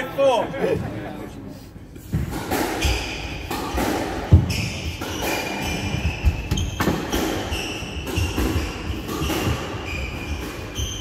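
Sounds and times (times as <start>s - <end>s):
squash ball hitting rackets and walls: 2.0s - 11.0s
shoes squeaking on wooden floor: 4.3s - 11.0s.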